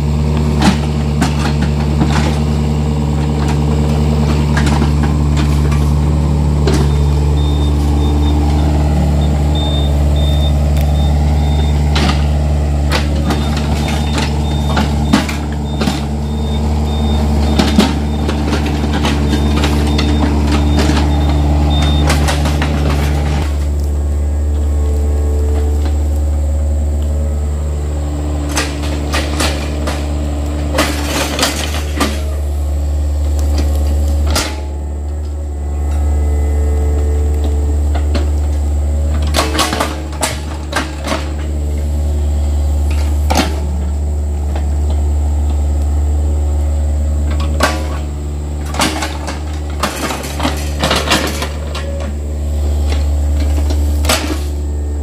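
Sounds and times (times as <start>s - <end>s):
diesel engine running: 0.0s - 55.0s
metallic clanks and knocks: 11.4s - 23.7s, 28.4s - 32.5s, 37.4s - 41.6s, 47.3s - 52.2s, 52.8s - 54.6s.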